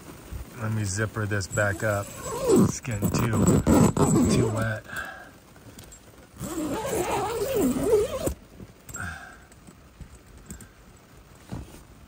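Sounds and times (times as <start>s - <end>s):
zipper being pulled: 1.7s - 4.8s, 6.4s - 8.4s.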